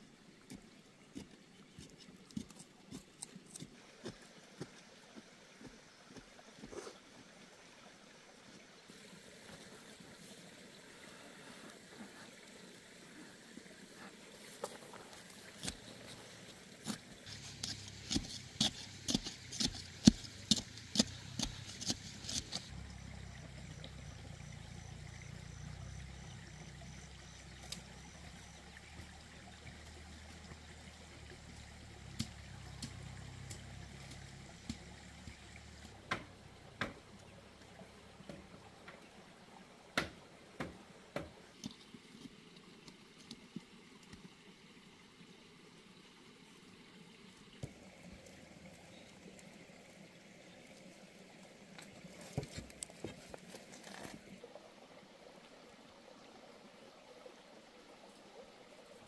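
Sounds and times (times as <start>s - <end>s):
trickle of running water: 0.0s - 59.0s
hoe striking ground: 16.9s - 22.7s.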